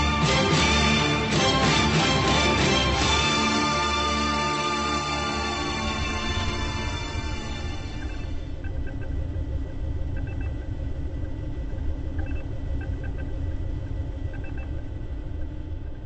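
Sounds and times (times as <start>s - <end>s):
low rumbling ambience: 0.0s - 16.0s
short electronic beeps: 10.2s - 10.6s, 12.2s - 13.3s, 14.3s - 14.8s.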